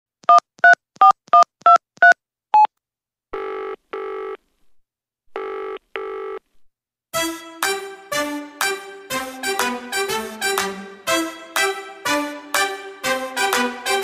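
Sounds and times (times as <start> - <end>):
phone ringback tone: 5.4 - 6.4.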